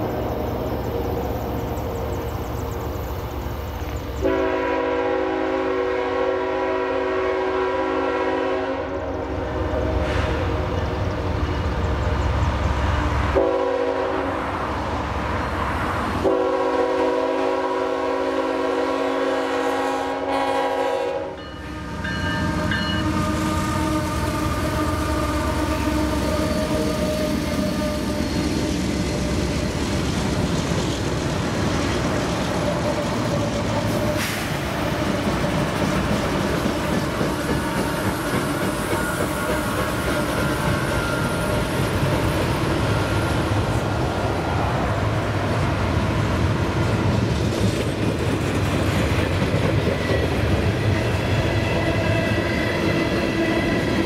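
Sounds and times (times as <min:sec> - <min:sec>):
train engines and wheels rumbling: 0:00.0 - 0:54.0
locomotive air horn blasts: 0:04.2 - 0:10.6, 0:13.1 - 0:14.5, 0:16.2 - 0:28.5.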